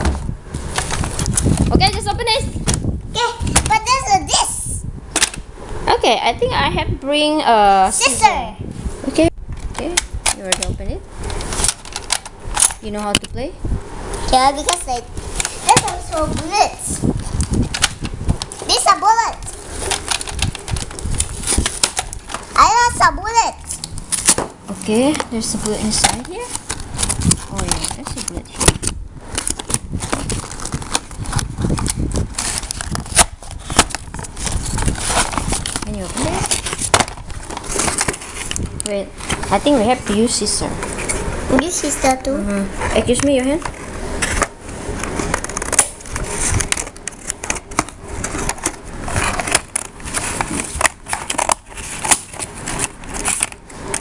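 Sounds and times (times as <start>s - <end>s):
packaging crinkling and rustling: 0.0s - 1.9s, 9.7s - 12.9s, 14.2s - 23.0s, 23.6s - 41.8s, 42.9s - 54.0s
plastic tray crinkling: 23.8s - 40.2s.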